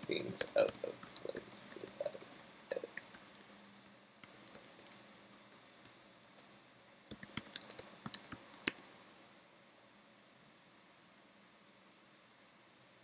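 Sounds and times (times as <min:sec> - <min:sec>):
computer keyboard typing: 0:00.0 - 0:05.0, 0:05.6 - 0:08.9.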